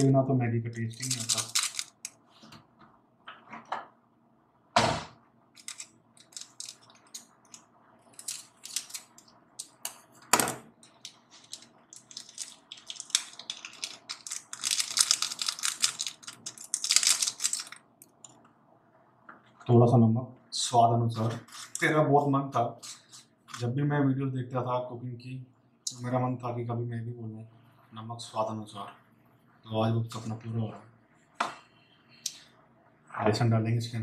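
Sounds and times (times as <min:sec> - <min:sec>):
crinkly rustling and scraping: 0:00.7 - 0:02.5, 0:05.6 - 0:09.8, 0:10.8 - 0:17.8, 0:21.2 - 0:21.9
clicks and crinkles: 0:00.8 - 0:02.2, 0:05.6 - 0:10.1, 0:10.8 - 0:18.4.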